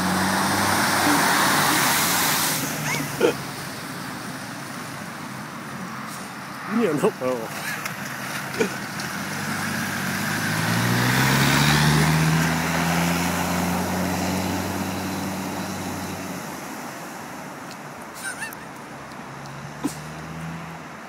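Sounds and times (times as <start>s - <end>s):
water spray rushing: 0.0s - 3.9s
car engine accelerating: 0.0s - 4.3s, 6.7s - 16.8s, 18.2s - 21.0s.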